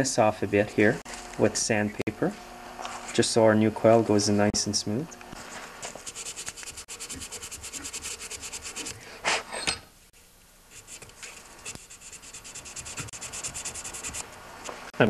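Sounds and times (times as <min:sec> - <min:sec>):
sandpaper rubbing on metal: 0:05.9 - 0:09.0, 0:10.7 - 0:14.2.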